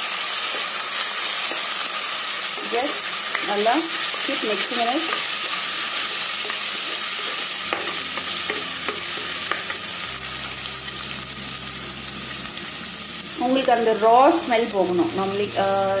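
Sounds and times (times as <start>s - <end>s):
food sizzling in oil: 0.0s - 16.0s
wooden spoon stirring and scraping: 1.3s - 9.8s
spoon tapping: 7.6s - 9.9s.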